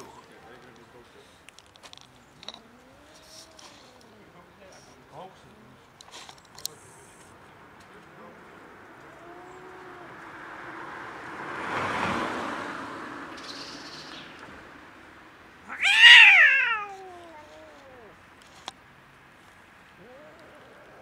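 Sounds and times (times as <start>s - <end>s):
cat meowing: 15.6s - 18.2s, 20.0s - 21.0s.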